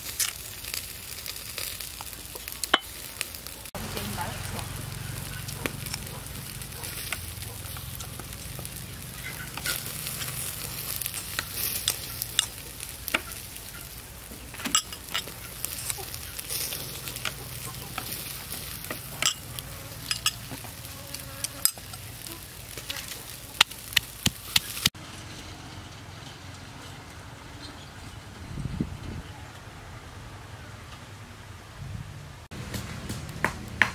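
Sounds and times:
metal spoon scraping glass bowl: 20.0 - 20.4.

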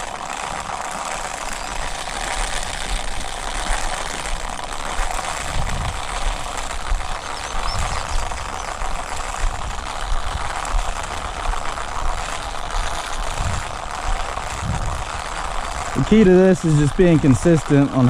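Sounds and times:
seed spreader gears whirring: 0.0 - 18.0
low thumps: 13.3 - 16.2.

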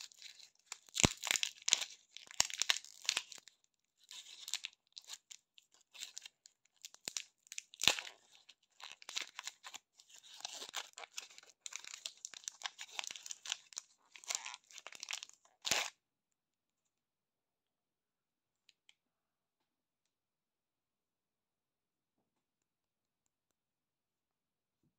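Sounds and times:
wrapper crackling and rustling: 0.0 - 15.9.

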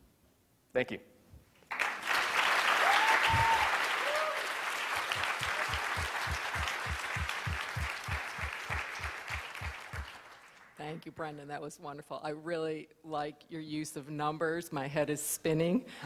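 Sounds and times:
audience applause: 1.7 - 10.8.

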